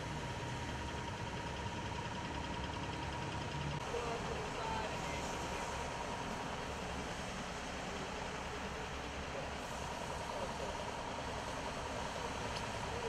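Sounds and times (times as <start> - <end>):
traffic hiss on wet road: 3.8 - 13.0.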